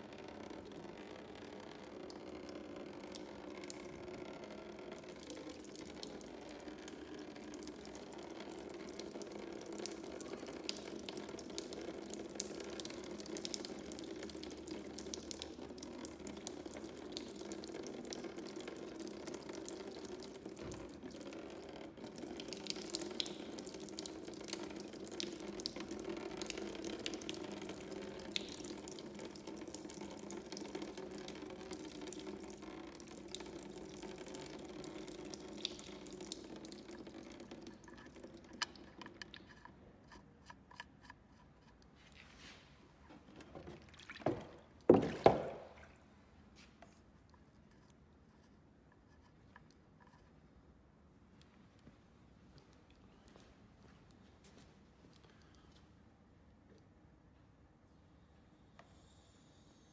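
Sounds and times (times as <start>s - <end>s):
fluid trickling into a drain pan: 0.0s - 40.9s, 42.1s - 46.0s.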